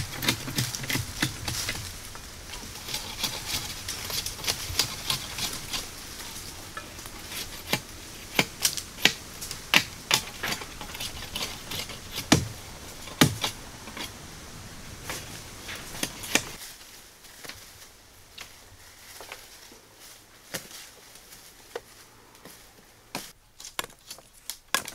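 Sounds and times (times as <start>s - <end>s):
blade chopping bamboo: 0.0s - 1.9s, 7.2s - 13.6s.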